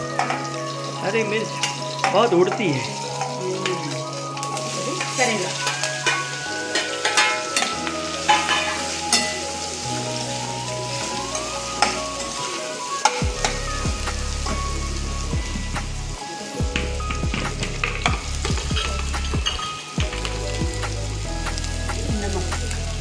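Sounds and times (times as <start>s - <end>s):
vegetables sizzling in hot oil: 0.0s - 23.0s
spoon scraping a pan: 5.0s - 9.8s.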